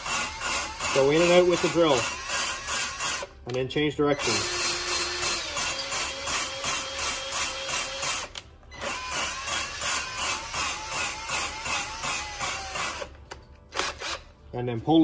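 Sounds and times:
cordless drill motor whine: 4.2s - 13.1s.

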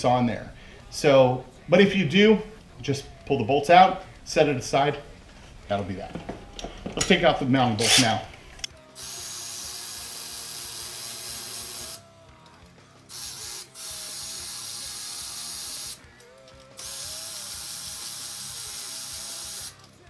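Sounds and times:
faint background music: 0.0s - 20.0s
powered ratchet running: 9.0s - 12.0s, 13.1s - 16.0s, 16.8s - 19.9s.

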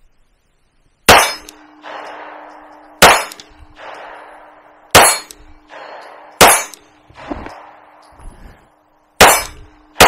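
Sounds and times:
pistol shots with echo: 1.1s - 8.1s, 9.1s - 10.0s
steel target ringing: 1.1s - 10.0s.

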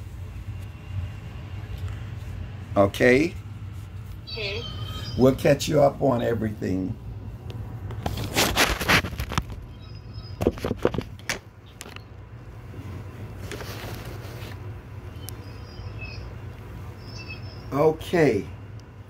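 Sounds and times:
phone handling rubs and bumps: 7.8s - 9.7s, 10.4s - 12.0s.

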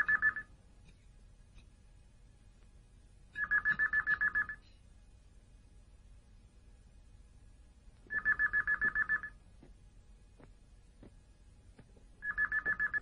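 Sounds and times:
telephone ringing: 8.1s - 9.4s, 12.2s - 13.0s.

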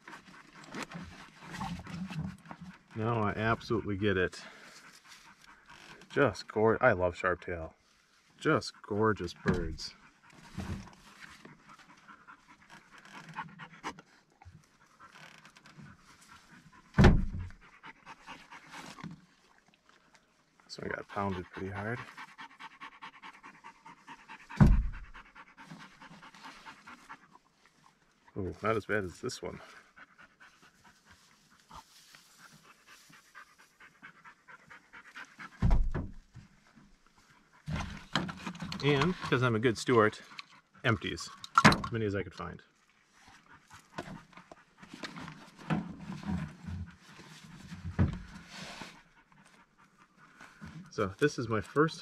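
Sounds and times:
dog panting: 8.7s - 15.1s, 16.1s - 19.7s, 20.8s - 28.4s, 29.3s - 35.7s
loud thump: 24.6s - 25.1s.

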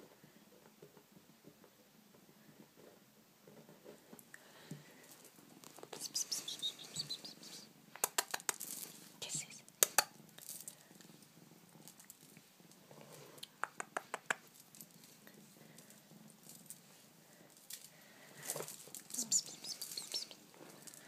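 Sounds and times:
rustling: 0.0s - 21.0s
kitten purring: 4.9s - 17.4s, 18.2s - 21.0s.

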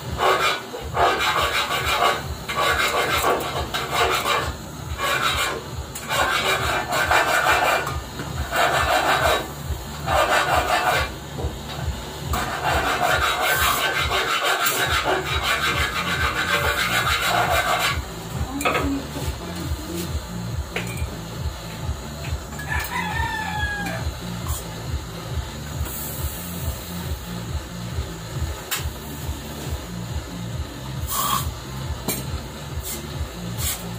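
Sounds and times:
hand tool scraping sheet metal: 0.0s - 11.1s, 12.3s - 18.0s
gas torch hissing: 0.0s - 33.9s.

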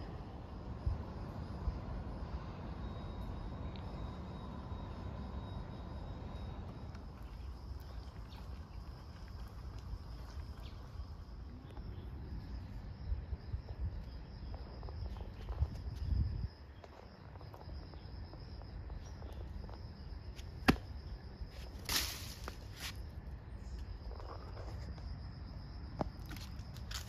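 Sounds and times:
insects trilling: 0.0s - 27.0s
rustling hiss: 21.6s - 23.0s.

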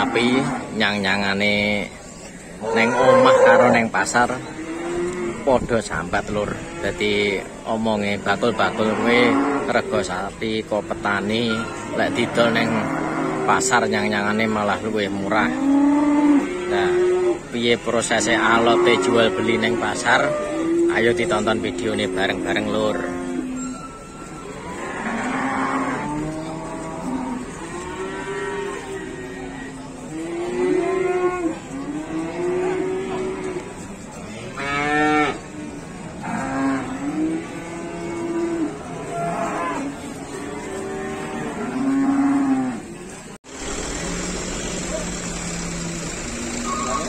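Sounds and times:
cows mooing: 0.0s - 1.4s, 2.6s - 47.0s
truck engine hum: 43.5s - 47.0s.

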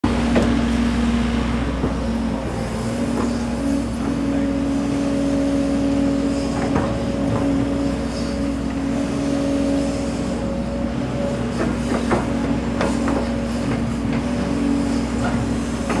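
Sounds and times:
electric train hum and rumble: 0.0s - 16.0s.

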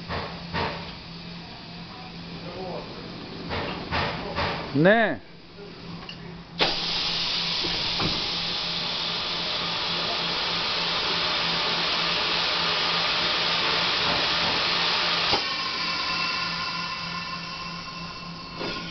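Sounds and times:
steady whine: 0.0s - 18.9s
heat press hissing: 6.6s - 18.9s.

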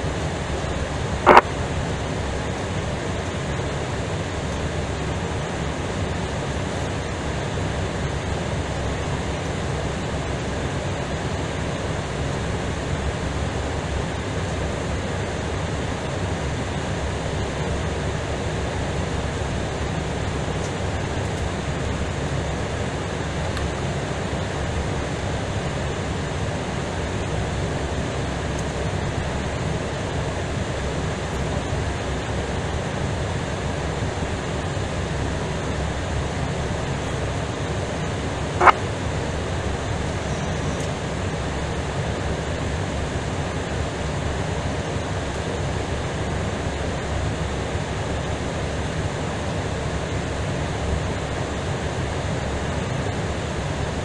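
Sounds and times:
steady rushing noise: 1.2s - 1.5s.

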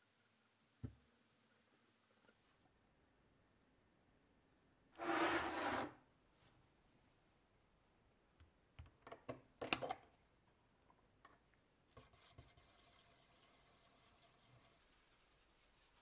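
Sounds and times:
stick stirring paint: 11.9s - 16.0s.

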